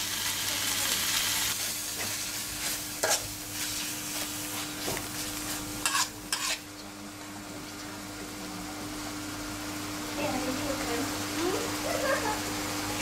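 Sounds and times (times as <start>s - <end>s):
food sizzling: 0.0s - 13.0s
metal spoon scraping a wok: 2.0s - 3.9s, 5.8s - 6.7s.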